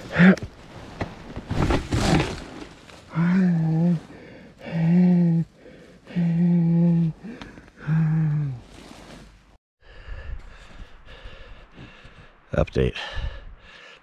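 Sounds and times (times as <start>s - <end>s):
man moaning in pain: 3.1s - 8.6s
man gasping breaths: 4.0s - 6.4s, 9.8s - 12.4s, 13.0s - 14.0s.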